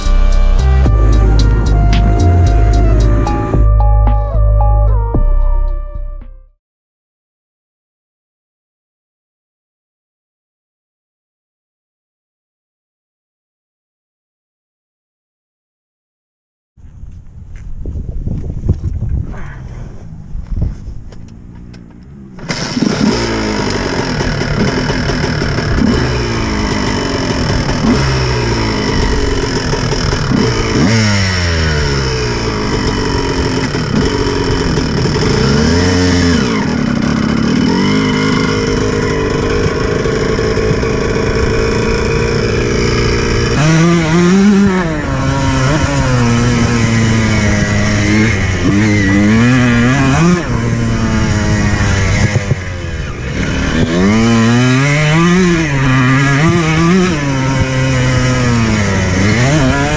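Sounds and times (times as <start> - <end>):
dirt bike engine revving: 0.0 - 3.9, 19.4 - 59.9.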